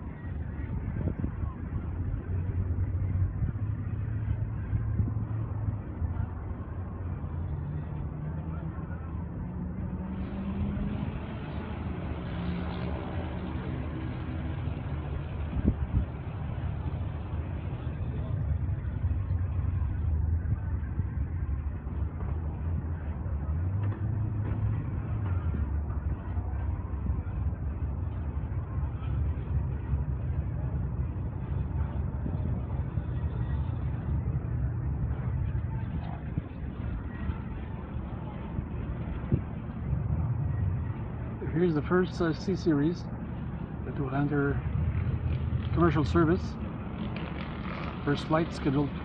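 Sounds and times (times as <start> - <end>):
low rumble of distant engines: 0.0 - 49.0
outdoor noise: 0.0 - 49.0.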